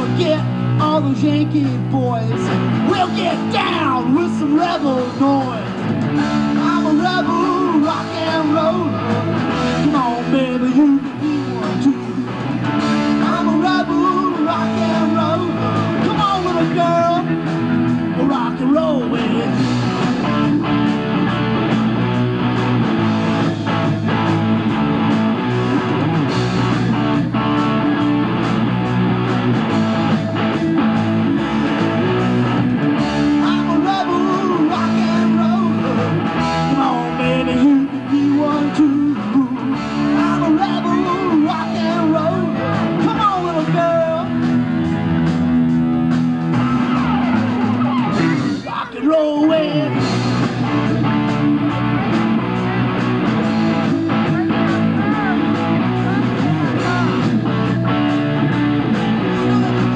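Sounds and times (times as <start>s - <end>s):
electric guitar lead line bending: 0.0s - 59.9s
rock band playing: 0.0s - 59.9s.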